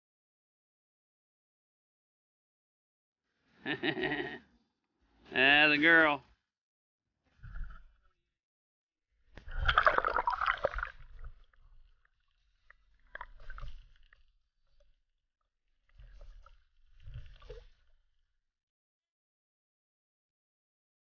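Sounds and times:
sea water splashing and gurgling: 0:09.3 - 0:15.0, 0:15.7 - 0:18.2.

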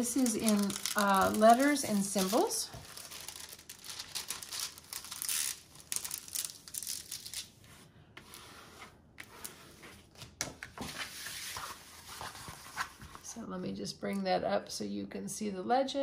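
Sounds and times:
plastic film crinkling under scraper: 0:00.0 - 0:07.5.

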